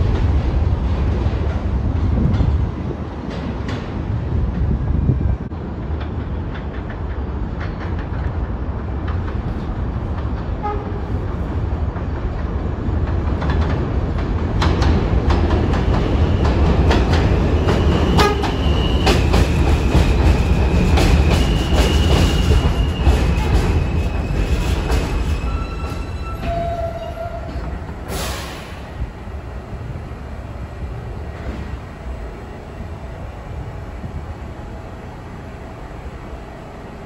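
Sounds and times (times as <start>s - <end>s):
subway train rumbling on rails: 0.0s - 37.0s
rail-joint clicks: 2.2s - 4.6s, 5.8s - 11.0s, 11.9s - 29.0s.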